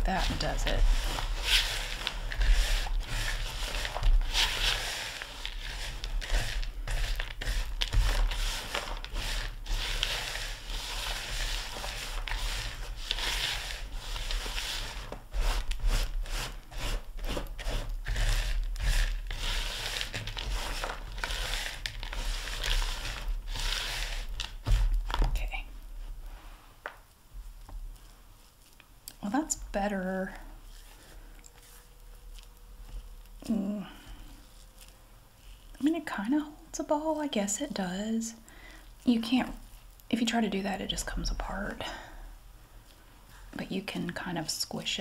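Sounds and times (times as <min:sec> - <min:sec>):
spatula stirring crunchy mixture: 0:00.0 - 0:25.2, 0:27.4 - 0:36.2.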